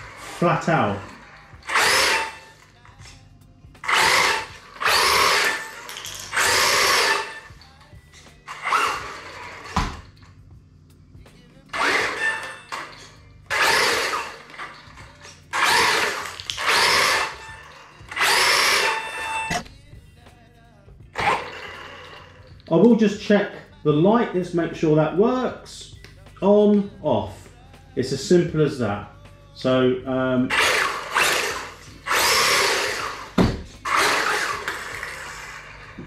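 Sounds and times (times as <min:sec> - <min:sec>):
rc truck motor whine bursts: 0:00.0 - 0:02.8, 0:03.8 - 0:07.7, 0:08.4 - 0:10.4, 0:11.7 - 0:19.7, 0:21.2 - 0:22.5, 0:30.4 - 0:36.0.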